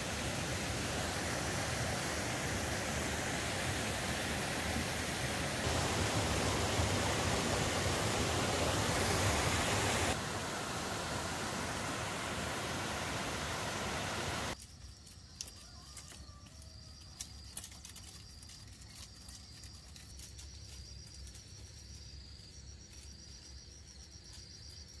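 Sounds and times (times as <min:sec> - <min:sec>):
loud rushing noise: 0:00.0 - 0:14.6
crickets chirping: 0:00.0 - 0:25.0.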